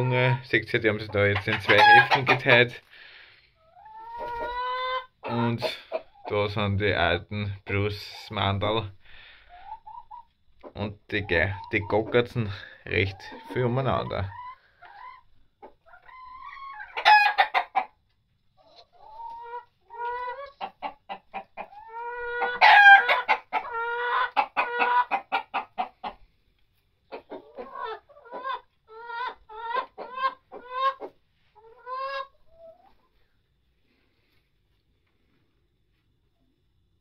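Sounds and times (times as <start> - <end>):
hens clucking: 0.0 - 33.6.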